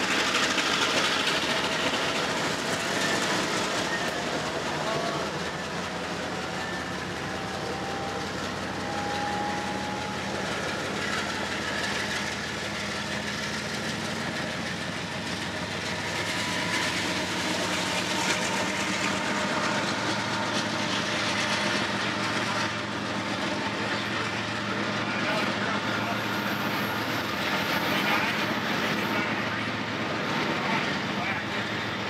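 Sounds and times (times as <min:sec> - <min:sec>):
train wheels rumbling on rails: 0:00.0 - 0:32.0
faint high squeal: 0:02.6 - 0:13.0.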